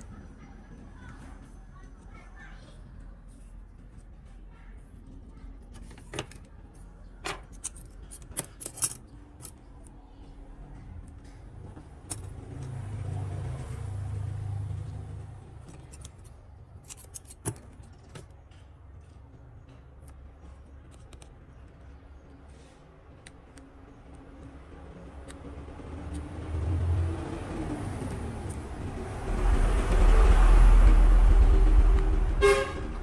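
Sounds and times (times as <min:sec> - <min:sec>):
plastic parts clicking and tapping: 0:05.6 - 0:09.9, 0:15.6 - 0:22.4
low rumble: 0:25.5 - 0:33.0.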